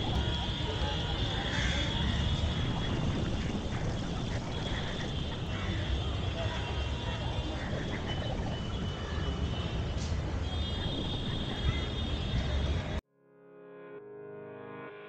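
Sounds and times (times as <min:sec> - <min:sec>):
low outdoor rumble: 0:00.0 - 0:13.0
music: 0:13.0 - 0:15.0.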